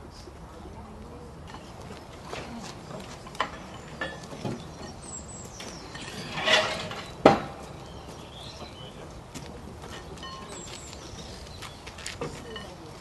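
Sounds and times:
metal rail clanking: 3.2s - 7.8s
metal rail scraping: 5.7s - 7.6s.

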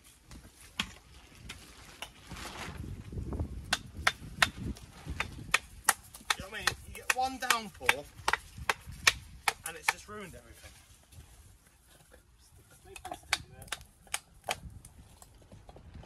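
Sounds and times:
hammer striking stone: 5.2s - 10.0s.

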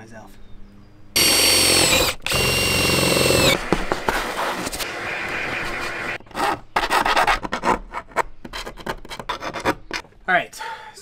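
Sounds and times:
cordless drill whine: 1.2s - 3.7s.

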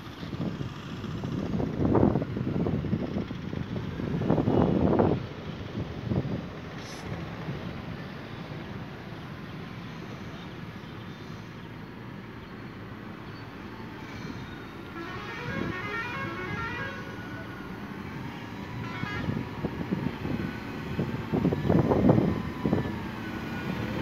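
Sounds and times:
diesel engine under load: 0.0s - 24.0s
traffic noise: 0.0s - 24.0s
horn tooting: 14.9s - 17.4s, 18.8s - 19.4s.

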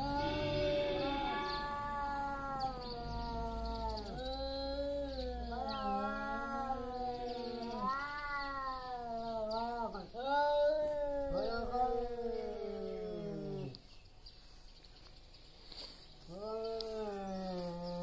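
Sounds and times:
tomcats yowling: 0.0s - 13.8s.

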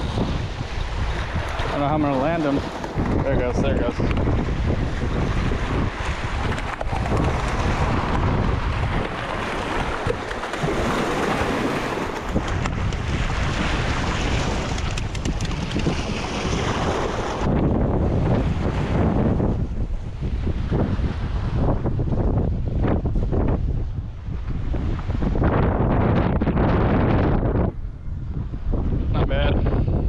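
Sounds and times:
waves breaking against rocks: 0.0s - 19.5s
wind buffeting microphone: 0.0s - 30.0s.

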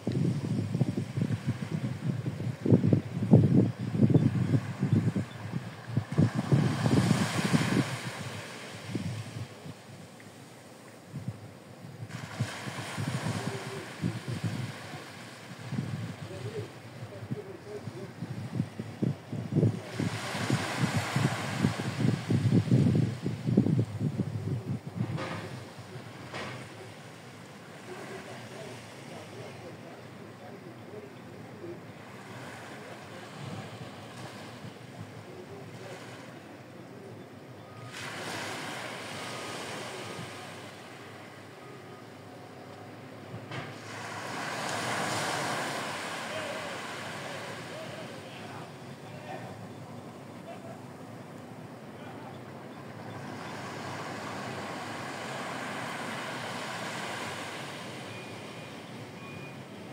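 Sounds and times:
wind on microphone: 0.0s - 9.9s, 11.1s - 26.0s
surf washing onto beach: 0.0s - 30.4s, 37.8s - 41.6s, 43.6s - 51.0s, 52.9s - 59.9s
wind: 0.0s - 59.9s.

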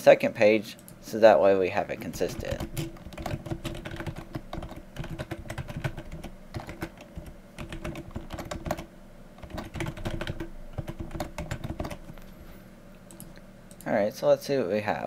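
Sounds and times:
keyboard typing clicks: 2.1s - 12.2s, 13.1s - 13.9s.

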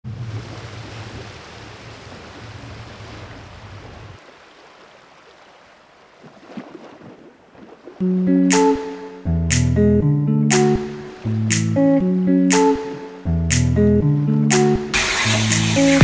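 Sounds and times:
guitar music: 8.0s - 16.0s.

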